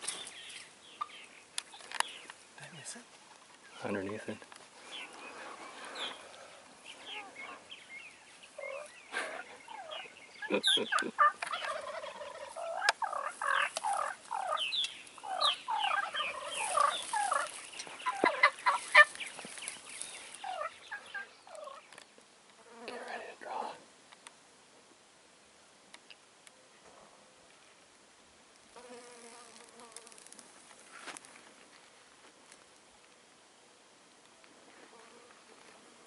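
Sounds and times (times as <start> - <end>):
turkeys clucking and yelping: 1.0 - 2.0, 8.5 - 22.1.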